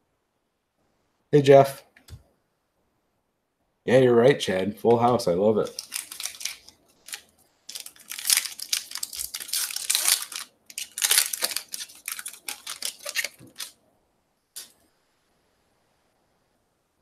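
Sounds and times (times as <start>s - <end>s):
foil wrapper crinkling: 5.0s - 13.8s.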